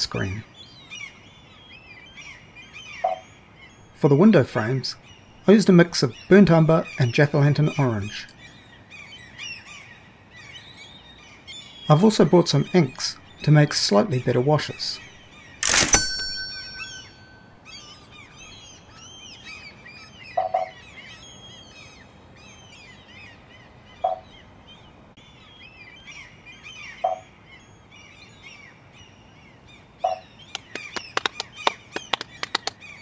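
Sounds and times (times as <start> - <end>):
songbirds chirping and singing: 0.0 - 33.0
quick run of clicks: 15.6 - 17.1, 30.5 - 33.0
glass clink: 15.7 - 17.6.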